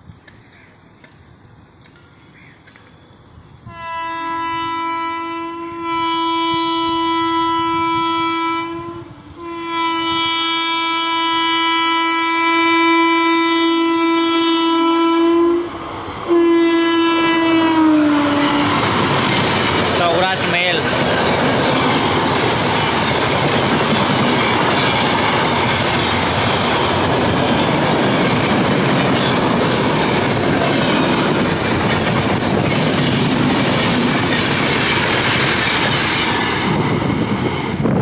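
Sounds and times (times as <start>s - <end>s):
locomotive horn blasts: 3.7s - 15.7s, 16.3s - 18.8s.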